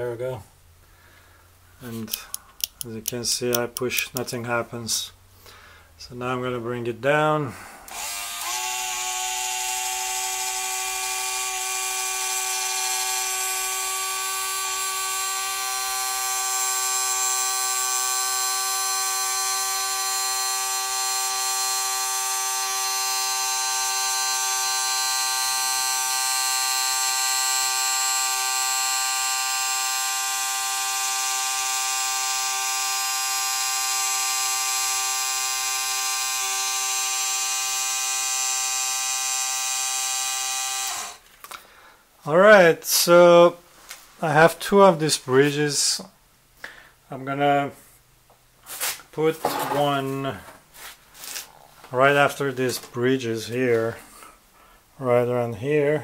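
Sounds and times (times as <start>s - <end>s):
small electric motor whine: 7.9s - 41.2s.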